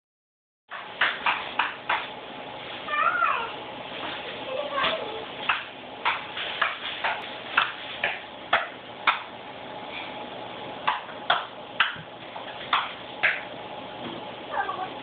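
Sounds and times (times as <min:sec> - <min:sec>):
shoes tapping on tiled floor: 0:04.0 - 0:09.2.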